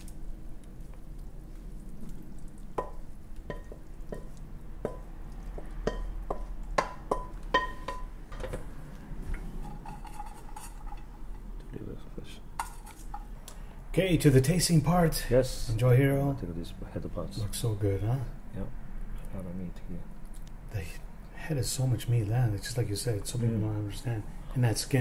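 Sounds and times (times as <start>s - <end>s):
pan clinking against bowl: 5.9s - 8.1s
food scraped from a pan: 9.4s - 11.5s, 12.6s - 13.2s.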